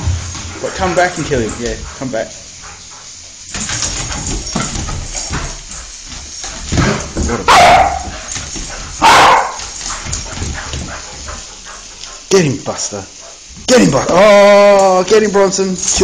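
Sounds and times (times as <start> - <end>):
dogs scuffling: 0.0 - 16.0
dog barking: 7.4 - 8.2, 9.0 - 9.8.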